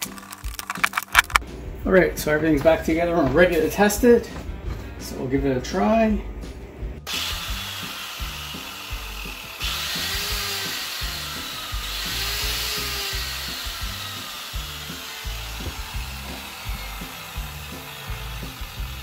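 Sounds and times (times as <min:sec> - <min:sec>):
angle grinder motor whine: 0:07.1 - 0:19.0.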